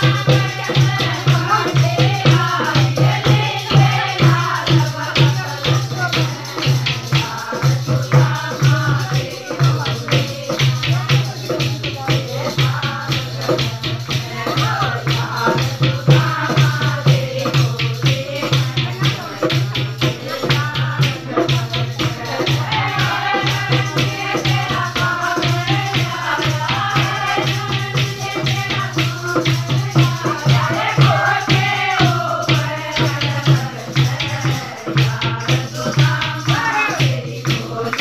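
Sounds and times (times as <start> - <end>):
rattling percussion: 0.0 - 38.0
women singing together: 0.0 - 38.0
hand-clapping: 21.5 - 38.0.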